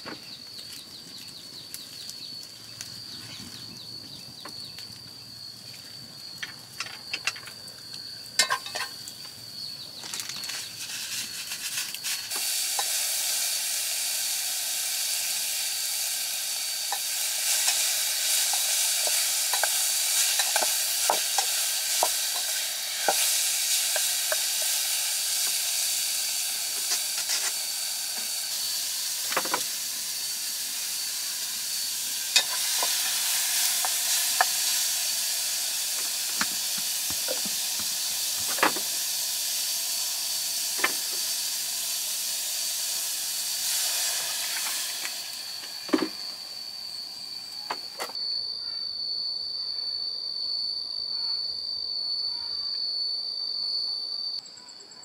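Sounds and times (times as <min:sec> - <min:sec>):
food sizzling in a pan: 0:08.0 - 0:48.2.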